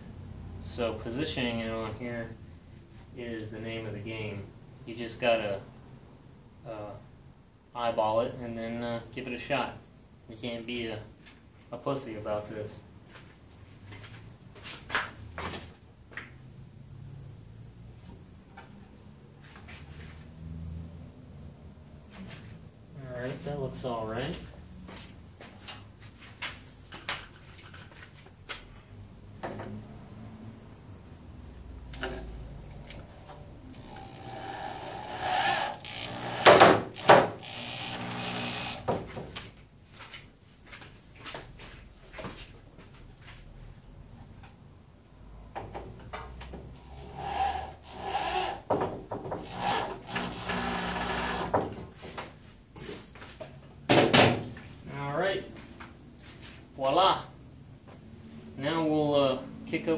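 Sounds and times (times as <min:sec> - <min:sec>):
cordless drill driving a screw: 0:33.7 - 0:38.9, 0:46.9 - 0:48.6, 0:49.4 - 0:51.6
drill being handled: 0:35.7 - 0:38.9.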